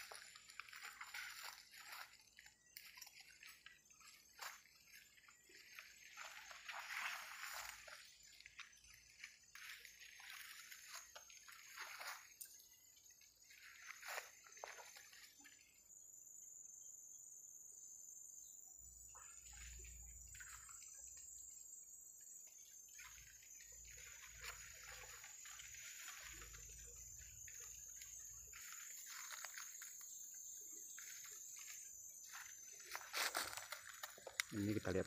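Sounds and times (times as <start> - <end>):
leaves and twigs rustling: 0.0 - 15.5, 23.0 - 35.0
high insect drone: 0.0 - 35.0.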